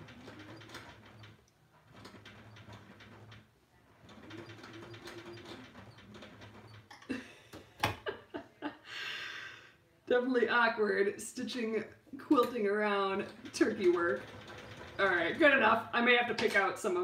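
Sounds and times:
sewing machine stitching: 0.0s - 6.9s, 13.0s - 15.9s.

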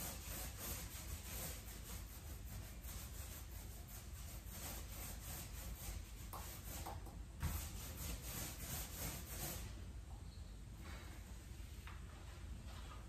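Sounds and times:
paint roller rubbing on wall: 0.0s - 9.8s.

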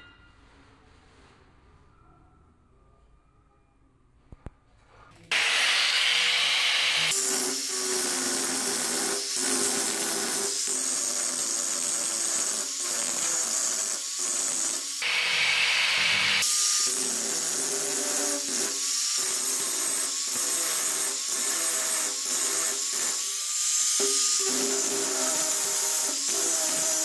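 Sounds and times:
angle grinder grinding metal: 5.3s - 27.0s.

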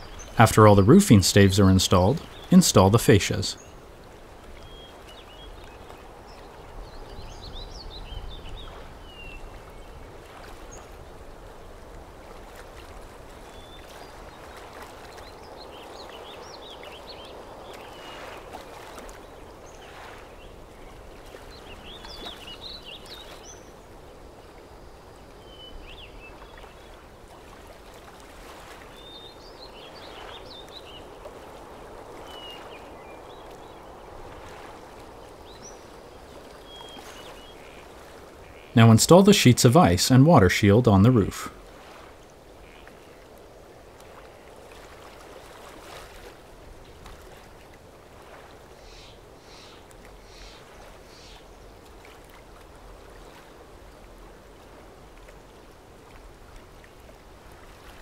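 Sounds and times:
bird chirps and song: 0.0s - 3.8s, 4.6s - 10.1s, 13.6s - 23.8s, 24.8s - 27.0s, 28.9s - 31.2s, 32.2s - 34.6s, 35.2s - 39.3s, 48.8s - 51.6s.

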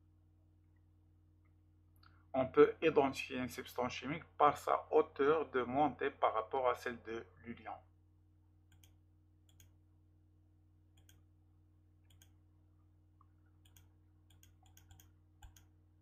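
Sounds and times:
faint low hum: 0.0s - 16.0s
faint computer mouse clicks: 13.6s - 15.7s.

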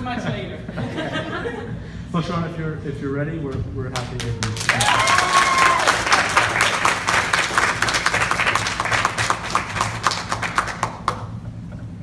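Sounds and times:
audience applauding: 4.0s - 11.4s.

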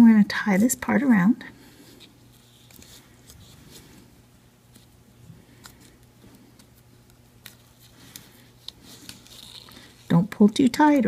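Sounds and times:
low steady hum: 0.0s - 11.0s
cardstock rustling and ticking: 4.7s - 11.0s.

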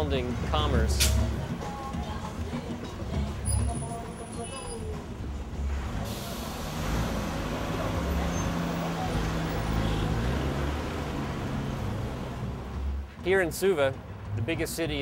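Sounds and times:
street traffic noise: 0.0s - 15.0s
bus engine driving past: 5.6s - 13.1s.

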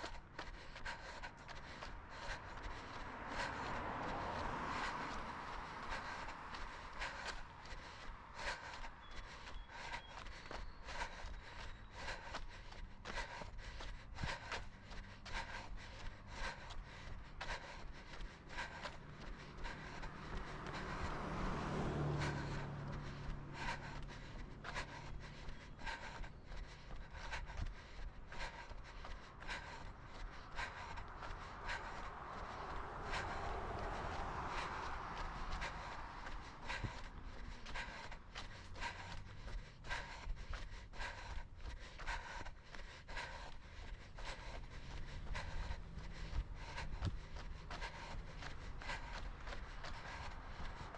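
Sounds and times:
breathing: 0.0s - 50.9s
running footfalls on concrete: 34.6s - 50.9s.

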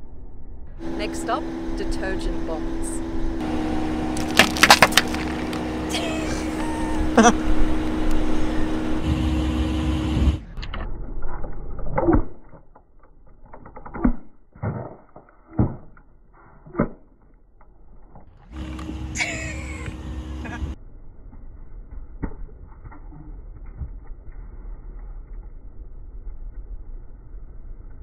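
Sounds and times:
steady hum: 0.0s - 10.6s, 18.5s - 21.8s.

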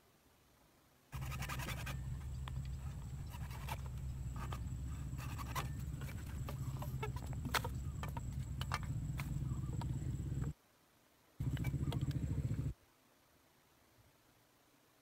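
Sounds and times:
hacksaw rasping through plastic pipe: 1.2s - 2.1s, 3.2s - 7.2s
low hum: 1.2s - 10.6s, 11.4s - 12.8s.

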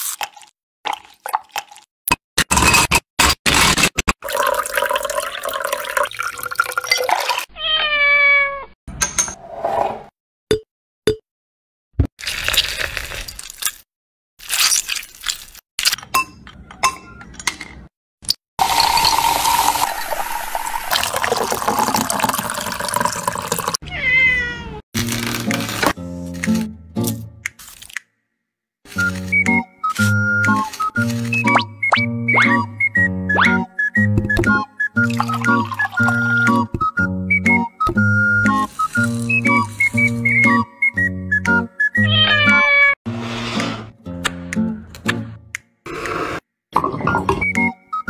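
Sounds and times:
liquid pouring over ice: 4.2s - 7.4s, 18.6s - 23.8s
cat meowing: 7.5s - 8.8s, 23.8s - 24.8s, 42.0s - 43.0s
music: 25.0s - 27.6s, 28.9s - 45.8s, 47.0s - 48.0s.

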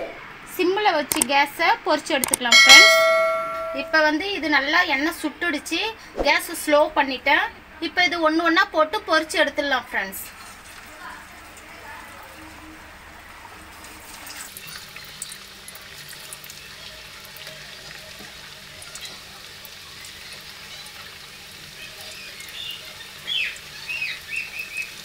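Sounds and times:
dough sizzling in hot oil: 9.2s - 25.0s.

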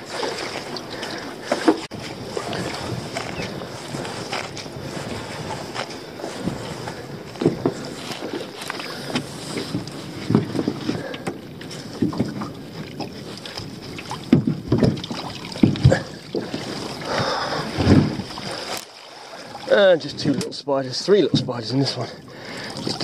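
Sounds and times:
knocks and clatter against boat: 0.0s - 18.8s, 19.4s - 23.0s
rope rubbing: 1.9s - 10.6s.

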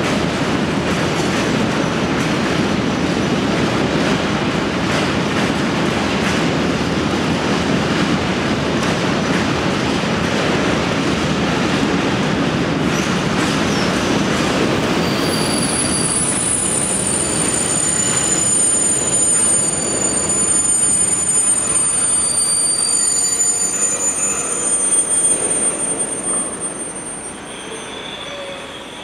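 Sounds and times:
train wheels rumbling on rails: 0.0s - 29.0s
wheels squealing: 14.8s - 29.0s.

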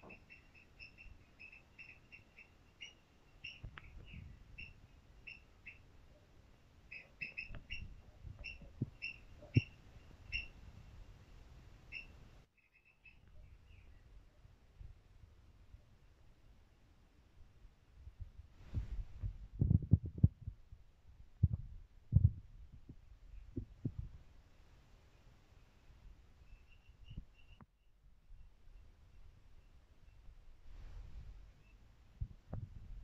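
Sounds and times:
small bird chirping: 0.0s - 11.2s, 11.8s - 14.5s, 25.1s - 31.9s
rumbling and thumping on microphone: 7.5s - 9.8s, 18.0s - 24.3s, 32.2s - 33.0s.

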